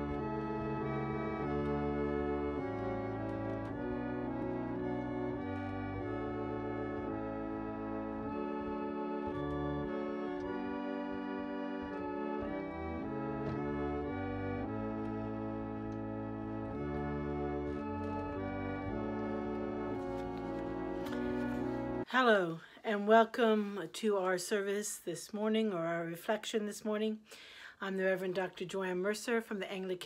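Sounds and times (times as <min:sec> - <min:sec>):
organ playing slow chords: 0:00.0 - 0:22.1.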